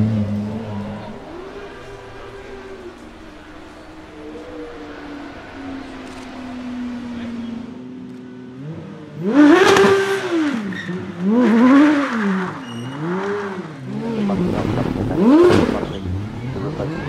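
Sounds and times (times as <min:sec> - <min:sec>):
car engine revving hard: 0:08.6 - 0:17.0.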